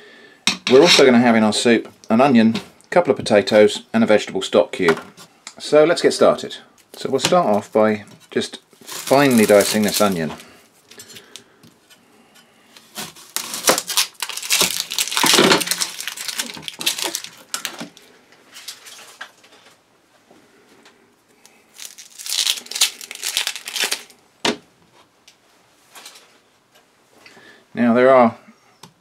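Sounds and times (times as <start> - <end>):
onion skin crackling and tearing: 8.7 - 10.5, 12.8 - 19.3, 21.4 - 24.2.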